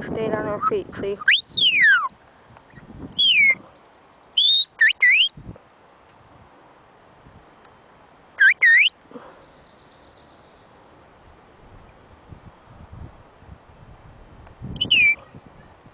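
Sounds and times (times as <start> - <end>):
shepherd's whistle: 1.2 - 2.1, 3.2 - 3.6, 4.4 - 5.4, 8.4 - 9.0, 14.8 - 15.3.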